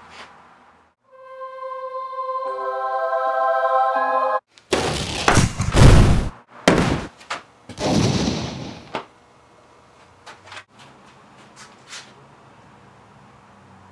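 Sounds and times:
heavy crash: 0:04.8 - 0:07.1, 0:07.8 - 0:08.9
loud bangs: 0:05.0 - 0:07.1, 0:07.8 - 0:09.0.

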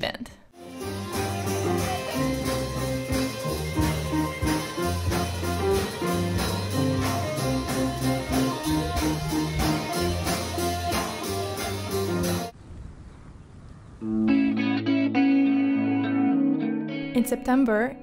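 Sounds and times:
drum kit beat: 0:00.6 - 0:12.5
electric bass: 0:00.6 - 0:12.5
electric guitar: 0:00.6 - 0:12.5, 0:14.0 - 0:17.3.

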